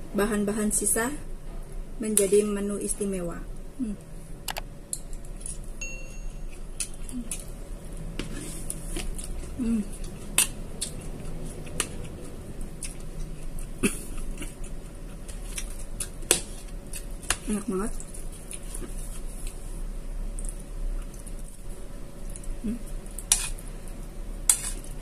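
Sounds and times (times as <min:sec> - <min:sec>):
low hums: 0:00.0 - 0:16.2, 0:16.8 - 0:25.0
faint chewing: 0:06.5 - 0:21.5.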